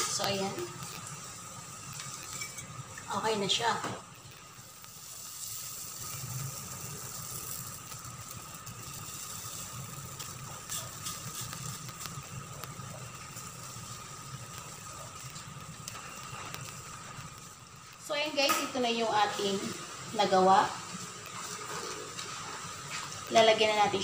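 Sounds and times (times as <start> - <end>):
faint thin whine: 0.0 - 20.3
low rumble and hiss: 0.0 - 24.0
spatula scraping frying pan: 2.0 - 2.7.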